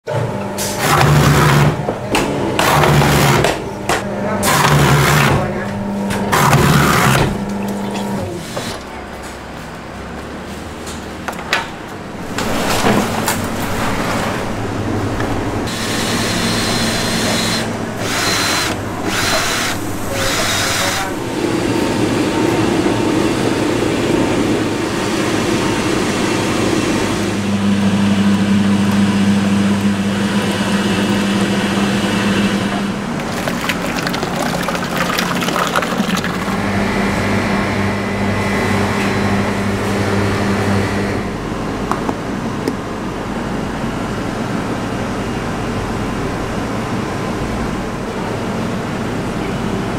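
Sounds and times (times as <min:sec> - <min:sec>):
electric motors humming: 0:12.1 - 0:26.1.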